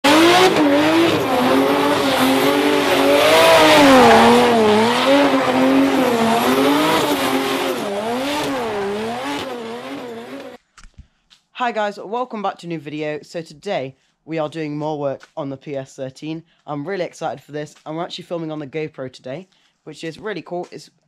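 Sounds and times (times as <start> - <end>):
car engine revving: 0.0 - 10.6
tyres screeching: 0.1 - 10.6.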